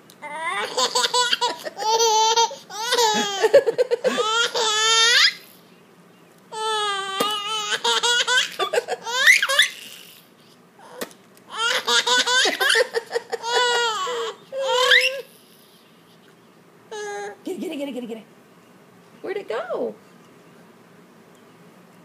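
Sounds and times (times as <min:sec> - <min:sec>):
baby laughing and squealing: 0:00.2 - 0:05.5, 0:06.6 - 0:15.4.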